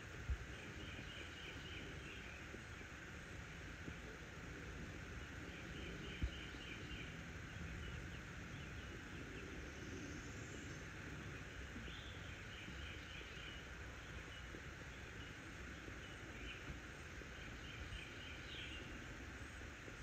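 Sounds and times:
background hiss: 0.0s - 20.0s.

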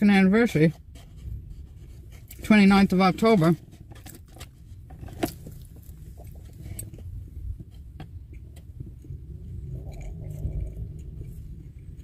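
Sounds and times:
low steady rumble: 0.0s - 12.0s
small clicks and rustles: 3.2s - 9.2s.

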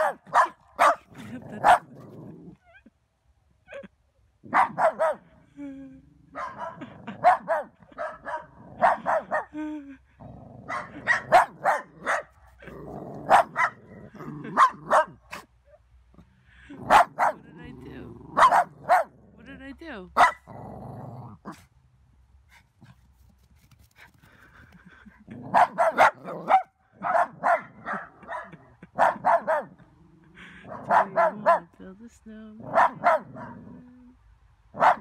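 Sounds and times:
small dogs barking: 0.0s - 2.0s, 4.5s - 5.3s, 6.3s - 9.5s, 10.6s - 15.5s, 16.8s - 17.4s, 18.3s - 19.2s, 20.2s - 20.5s, 25.4s - 29.8s, 30.7s - 31.7s, 32.6s - 33.8s, 34.8s - 35.0s.

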